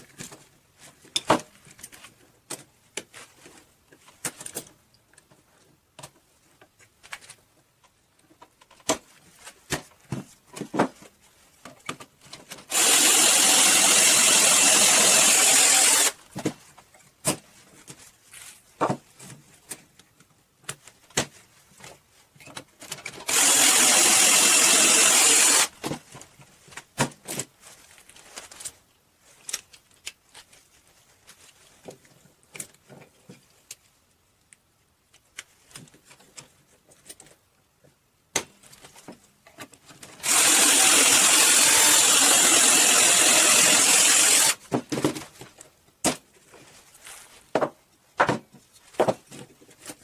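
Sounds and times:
cordless drill drilling into wood: 0:12.7 - 0:16.2, 0:23.2 - 0:25.7, 0:40.2 - 0:44.6.

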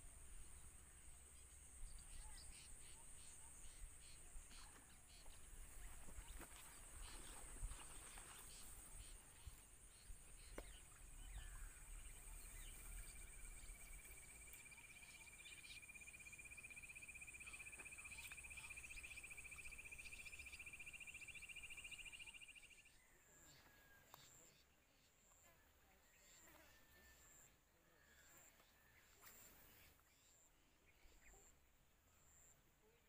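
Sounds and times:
lower pulsing insect trill: 0:00.0 - 0:25.4.

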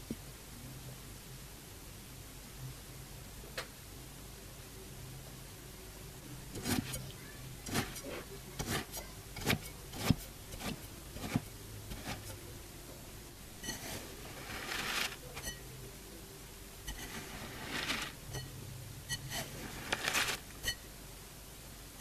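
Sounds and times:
sand crunching: 0:07.7 - 0:12.3, 0:13.6 - 0:15.5, 0:16.9 - 0:18.2, 0:19.2 - 0:20.8.

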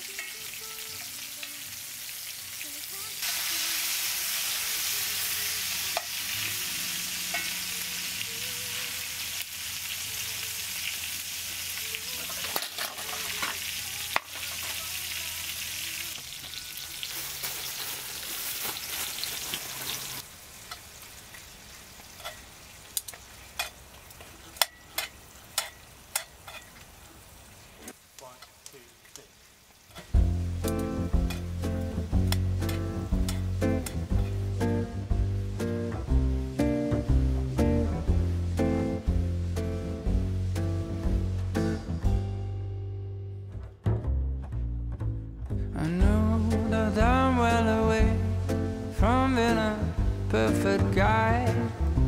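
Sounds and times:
vegetables sizzling in oil: 0:00.0 - 0:41.7
tongs clicking against pan: 0:22.2 - 0:26.9, 0:32.2 - 0:34.1.

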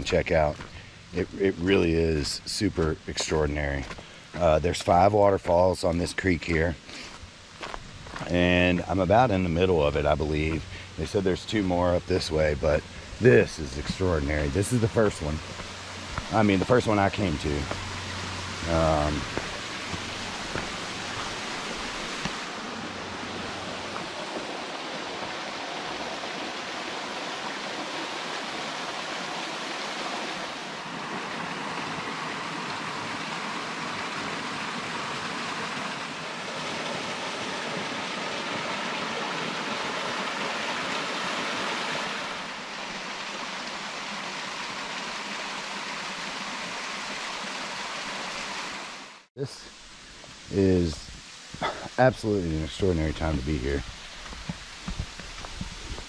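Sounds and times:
waterfall rushing: 0:00.0 - 0:49.8.

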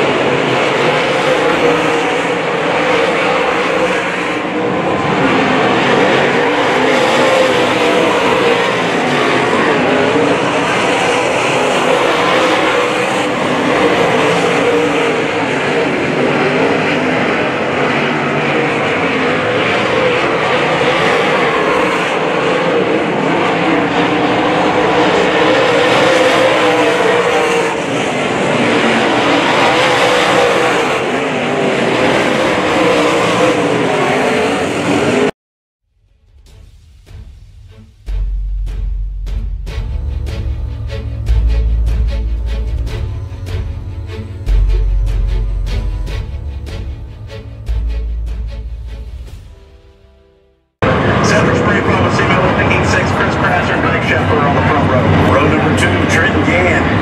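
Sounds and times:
race car engines droning: 0:00.0 - 0:35.3, 0:37.1 - 0:57.0.

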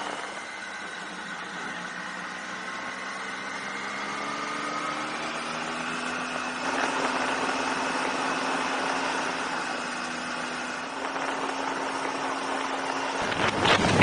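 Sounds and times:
motorcycle engine running: 0:00.0 - 0:14.0
wind noise on microphone: 0:13.2 - 0:14.0.

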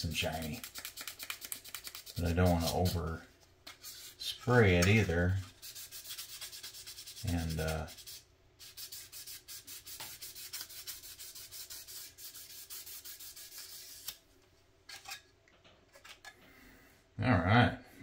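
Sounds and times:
sanding pad rubbing on plastic: 0:00.3 - 0:03.0, 0:05.5 - 0:14.1.

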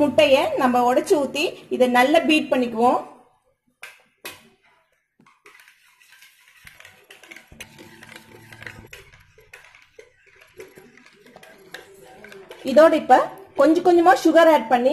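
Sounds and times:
whisk beating eggs in bowl: 0:04.8 - 0:14.3.

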